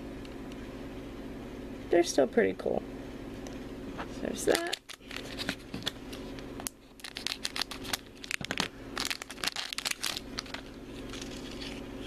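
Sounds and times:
blind pack crinkling and tearing: 4.5s - 12.0s.

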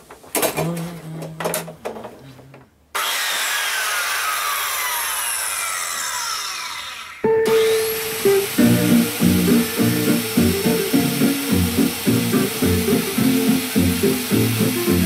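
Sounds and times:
circular saw spinning down: 3.0s - 15.0s
music: 7.3s - 15.0s.

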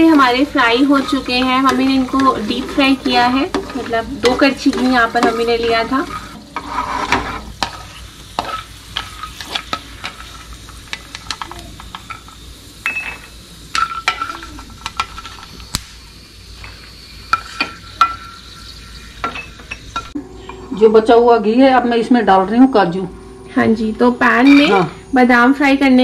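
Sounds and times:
spatula tapping and scraping pan: 0.0s - 15.6s
almonds sizzling in a pan: 0.0s - 26.0s.

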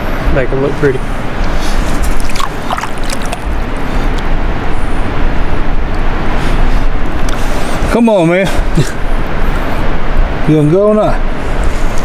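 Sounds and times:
loud rushing noise: 0.0s - 12.0s
fish splashing in water: 1.6s - 3.8s.

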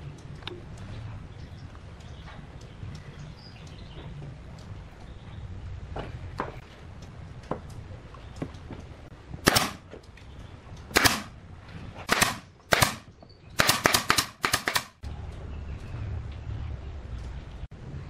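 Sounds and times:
nail gun firing into wood: 9.4s - 9.8s, 10.9s - 11.4s, 12.1s - 15.0s.

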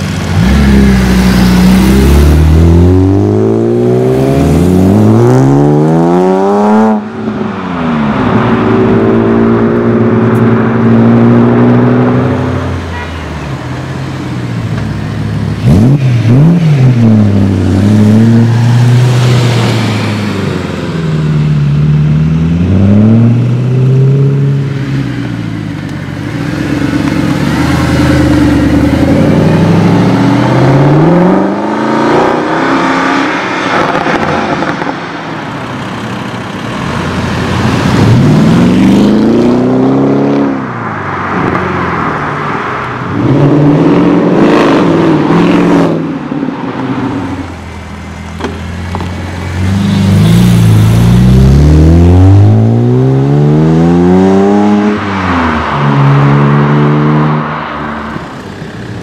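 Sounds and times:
sports cars accelerating and revving: 0.0s - 59.0s.

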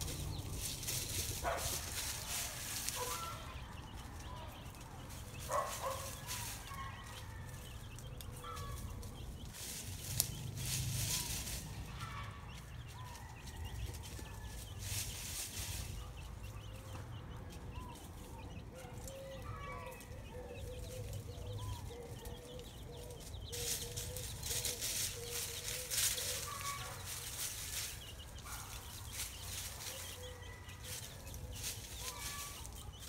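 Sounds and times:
dry leaves rustling: 0.0s - 33.0s
hen and chicks clucking: 0.0s - 33.0s.

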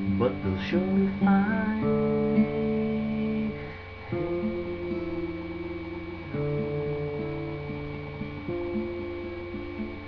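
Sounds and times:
acoustic guitar: 0.0s - 10.0s.

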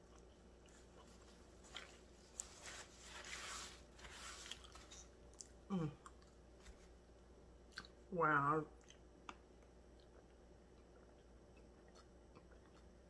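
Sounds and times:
person chewing food: 0.0s - 2.6s, 4.2s - 6.7s, 7.6s - 8.0s, 8.8s - 13.0s.

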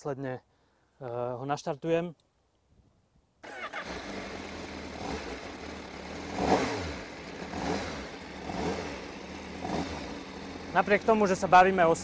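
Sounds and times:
motorcycle engine idling: 3.5s - 12.0s.

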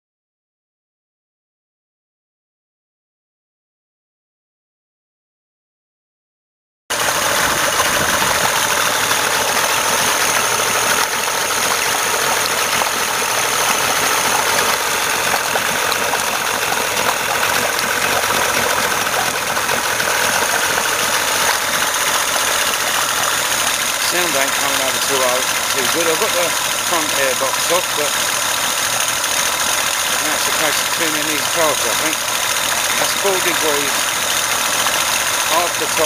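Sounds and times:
outboard engine idling: 6.9s - 36.0s.

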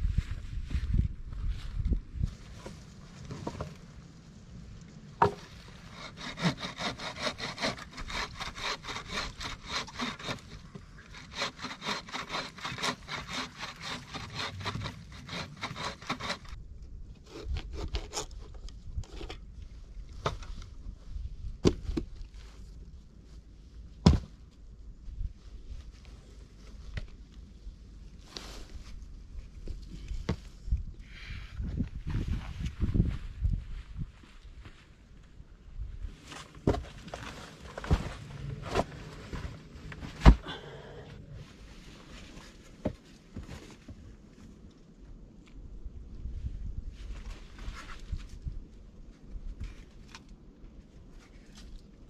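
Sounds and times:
bow saw cutting log: 5.2s - 16.6s.

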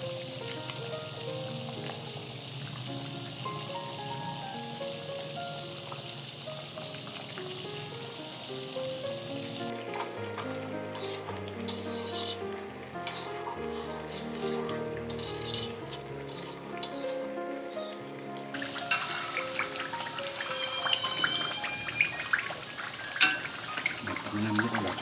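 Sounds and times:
coconut milk sizzling and bubbling: 0.0s - 25.0s
soft instrumental music: 0.0s - 25.0s
metal spatula scraping a pan: 10.9s - 12.4s, 13.0s - 17.2s, 18.6s - 21.4s.

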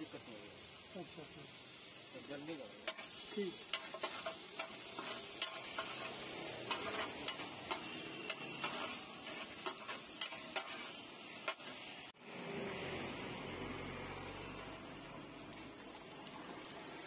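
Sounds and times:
vegetables sizzling in a frying pan: 0.0s - 12.1s
steel spoon scraping a pan: 2.8s - 11.8s.

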